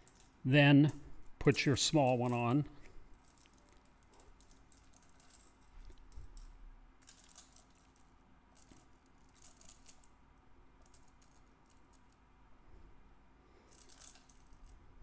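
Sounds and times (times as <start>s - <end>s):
metal chain clinking: 0.0s - 0.4s, 2.0s - 10.2s, 10.8s - 12.2s, 13.6s - 15.0s.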